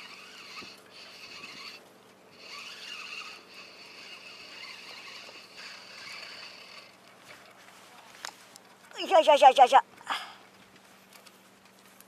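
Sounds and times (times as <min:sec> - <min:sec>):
fishing reel whirring: 0:00.0 - 0:07.2.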